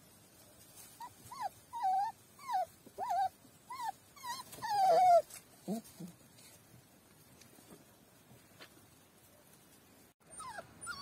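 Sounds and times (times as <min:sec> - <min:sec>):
puppy whimpering: 0:01.0 - 0:06.2, 0:10.3 - 0:11.0.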